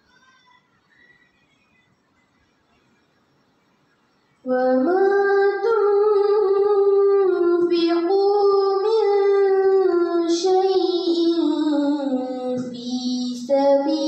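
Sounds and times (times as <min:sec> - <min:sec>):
girl chanting melodically: 0:04.5 - 0:14.0.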